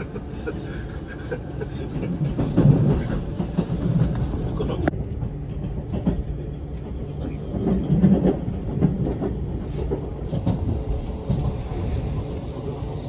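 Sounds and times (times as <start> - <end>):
train interior rumble: 0.0 - 13.0.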